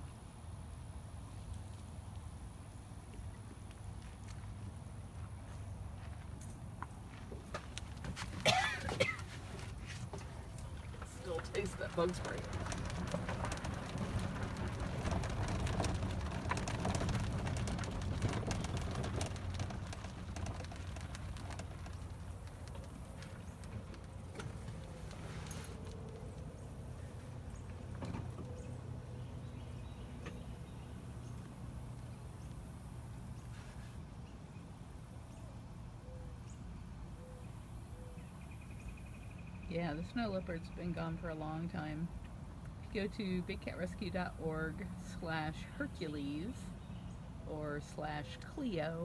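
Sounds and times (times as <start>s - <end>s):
low steady rumble: 0.0s - 49.0s
vehicle moving slowly: 0.0s - 49.0s
rattles and clicks from vehicle: 6.0s - 34.3s.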